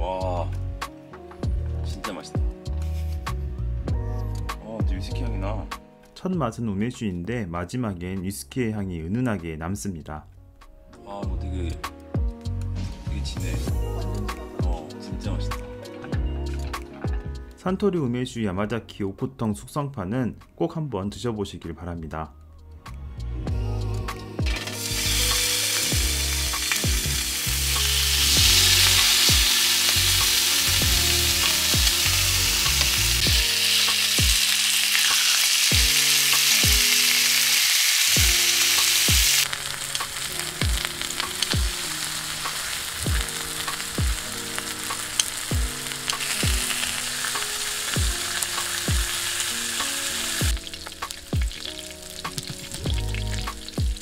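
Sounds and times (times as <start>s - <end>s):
pork slices sizzling on a griddle: 24.5s - 54.0s.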